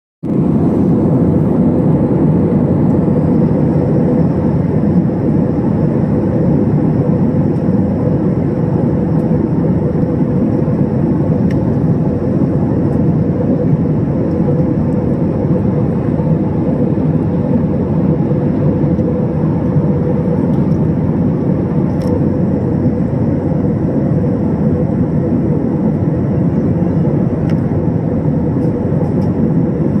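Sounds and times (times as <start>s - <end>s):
airliner cabin engine rumble: 0.2s - 30.0s.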